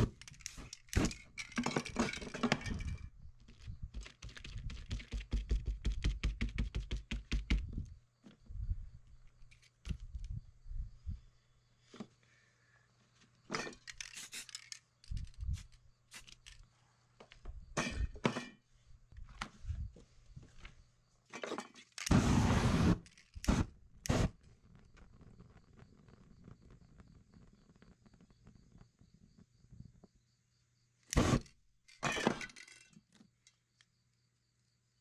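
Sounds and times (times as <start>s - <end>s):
paper masks handled: 0.0s - 8.4s
rapid clicking knocks: 3.9s - 7.7s
flames hissing: 22.1s - 28.9s.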